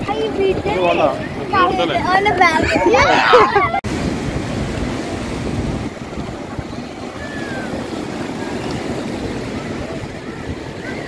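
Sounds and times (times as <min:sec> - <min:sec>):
voices: 0:00.0 - 0:03.8
sea surf breaking: 0:00.0 - 0:11.0
wind buffeting microphone: 0:00.0 - 0:11.0.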